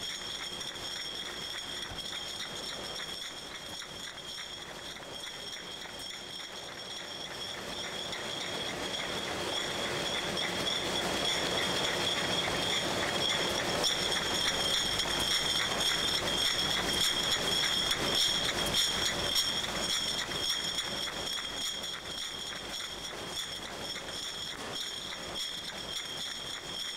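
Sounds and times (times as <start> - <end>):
machinery high-pitched whine: 0.0 - 26.9
glass bottles clinking: 8.9 - 22.7.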